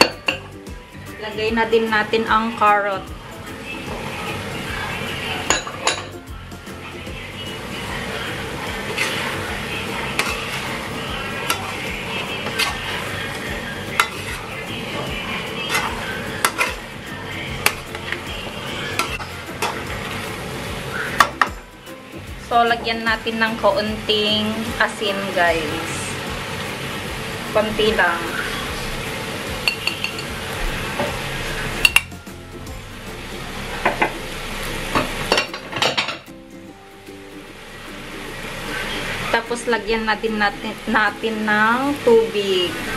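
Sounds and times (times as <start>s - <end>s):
food sizzling in a wok: 0.0s - 42.9s
metal spatula scraping a wok: 8.8s - 15.0s, 15.6s - 16.8s
spoon clinking and scraping pan: 10.1s - 10.8s, 12.4s - 13.0s, 29.6s - 30.4s.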